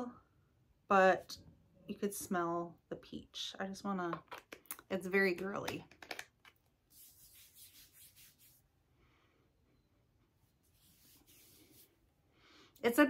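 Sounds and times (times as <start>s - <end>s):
hands rubbing lotion on skin: 6.1s - 8.7s, 10.6s - 12.0s.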